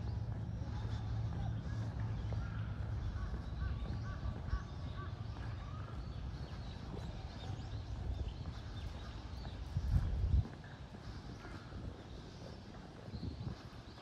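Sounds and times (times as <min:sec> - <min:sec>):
steady low rumble: 0:00.0 - 0:11.2.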